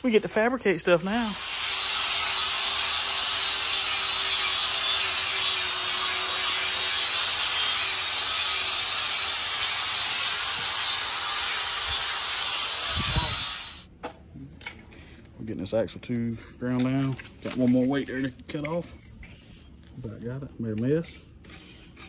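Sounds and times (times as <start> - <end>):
angle grinder grinding steel: 0.0 - 13.8.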